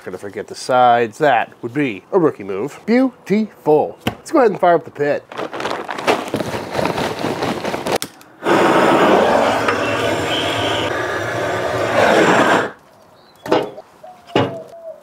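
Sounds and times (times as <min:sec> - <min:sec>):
charcoal rattling out of bag: 0:05.3 - 0:08.0
propane torch rushing: 0:08.4 - 0:12.8.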